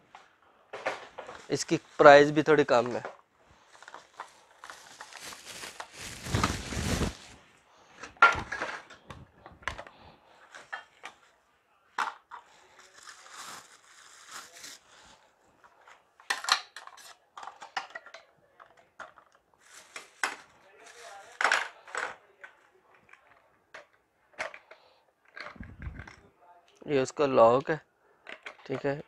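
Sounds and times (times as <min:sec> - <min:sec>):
plastic bag and bubble wrap crinkling: 0:03.6 - 0:07.4, 0:12.6 - 0:15.2, 0:19.6 - 0:21.4.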